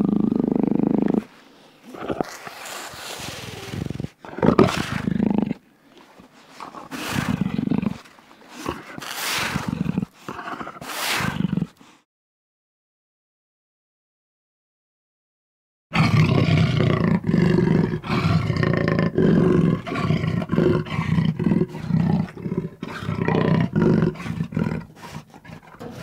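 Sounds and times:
jaguar growling and snarling: 0.0s - 1.3s, 1.9s - 5.6s, 6.6s - 11.9s, 15.9s - 26.0s.

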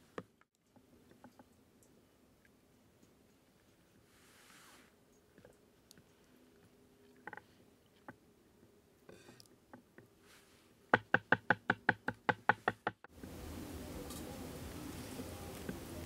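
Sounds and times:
steady hiss: 1.7s - 6.5s, 10.1s - 11.0s, 12.5s - 16.0s.

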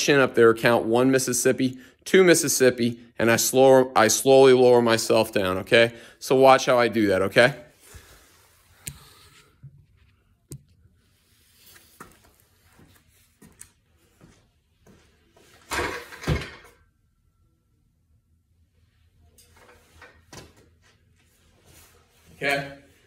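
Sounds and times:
footsteps on concrete: 12.0s - 15.1s.

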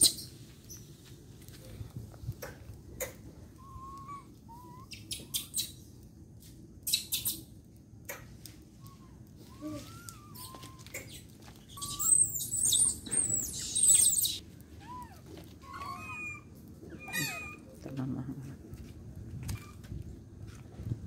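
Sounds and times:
monkeys squealing: 3.6s - 5.7s, 8.9s - 11.2s, 11.8s - 15.0s, 15.6s - 17.7s
macaques cooing: 8.9s - 11.2s, 11.8s - 17.8s.

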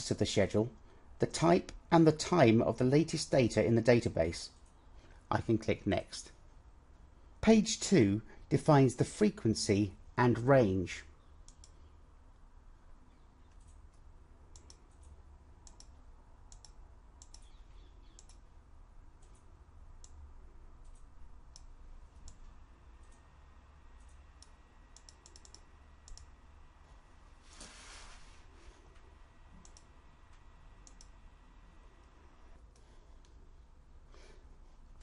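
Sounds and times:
steady low hum: 0.0s - 35.0s
computer mouse clicks: 11.4s - 12.4s, 13.4s - 18.4s, 19.2s - 20.2s, 20.8s - 23.2s, 24.0s - 26.3s, 29.5s - 29.9s, 30.8s - 31.2s
short hiss: 27.5s - 28.5s.

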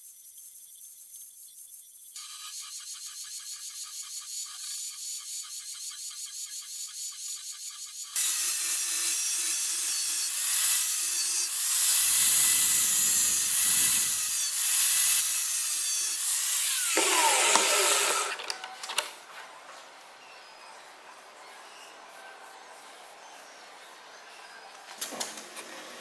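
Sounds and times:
angle grinder cutting steel: 7.6s - 19.1s
grinder winding down: 16.5s - 19.1s.

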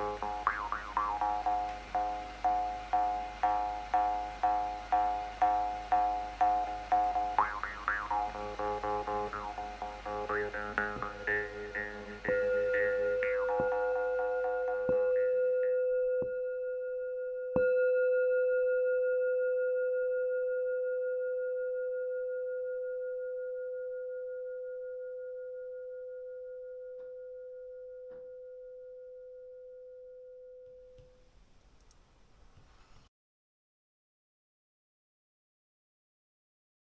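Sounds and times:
faint room noise: 30.6s - 33.1s
faint ticks: 31.0s - 33.1s.

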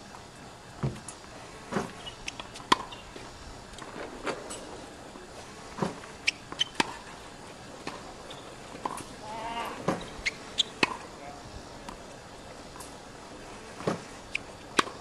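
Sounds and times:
tennis ball struck by racket: 1.7s - 2.9s, 6.6s - 7.1s, 9.8s - 11.1s
tennis ball bouncing on hard court: 1.8s - 2.9s, 5.9s - 7.1s, 9.8s - 11.1s.

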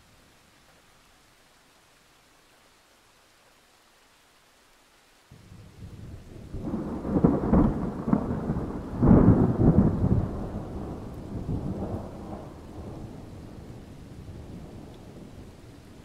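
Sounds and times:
rain hissing: 0.0s - 16.0s
thunder rumbling: 5.4s - 16.0s.

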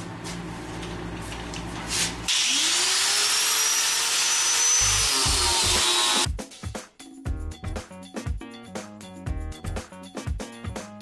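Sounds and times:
grinder grinding metal: 2.3s - 6.3s.

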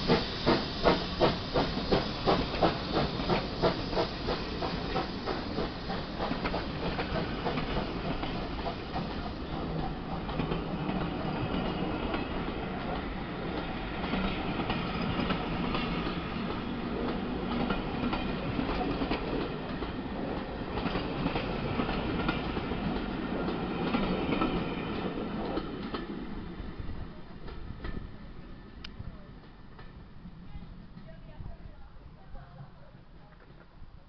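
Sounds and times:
train wheels clattering over rail joints: 0.0s - 26.2s.

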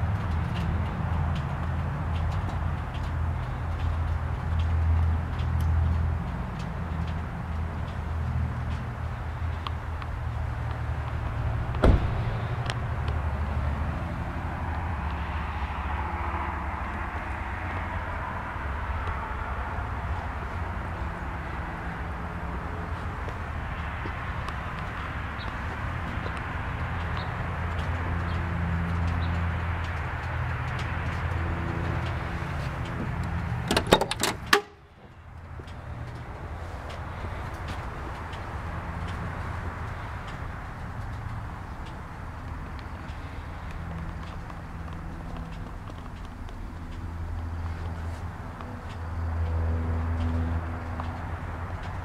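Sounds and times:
car door opening clicks: 11.8s - 12.2s, 33.6s - 34.7s.

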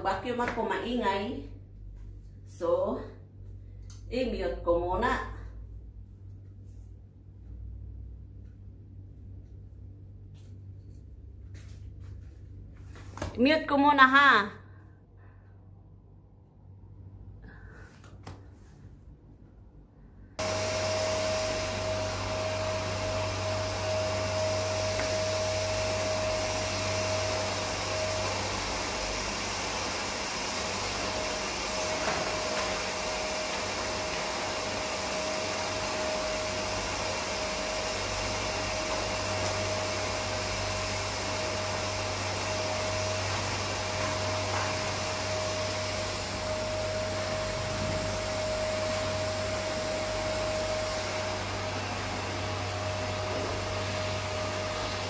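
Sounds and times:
vacuum cleaner running: 20.4s - 55.0s.

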